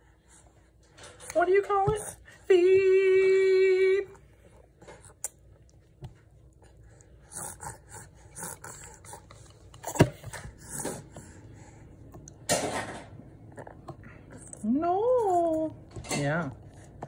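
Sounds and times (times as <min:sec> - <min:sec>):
baby huffing and mouth noises: 0:06.8 - 0:11.4.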